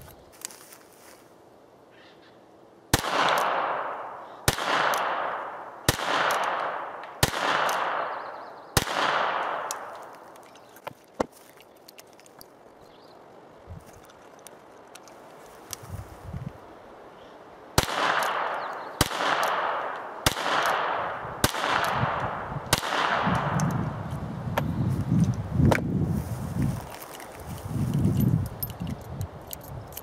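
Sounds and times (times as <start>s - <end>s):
revolver gunshots with echo: 2.9s - 9.9s, 17.8s - 23.8s.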